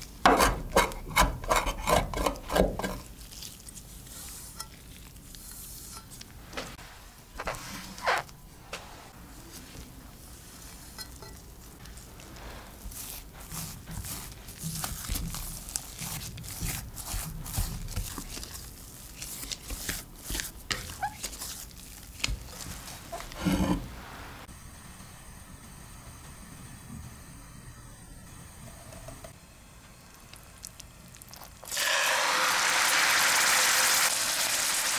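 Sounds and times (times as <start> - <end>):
spatula mixing mashed potatoes: 9.6 - 23.9.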